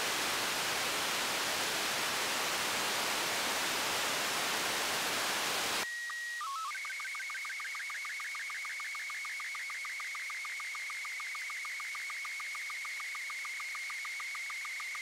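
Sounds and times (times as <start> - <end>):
radio static hiss: 0.0 - 5.8.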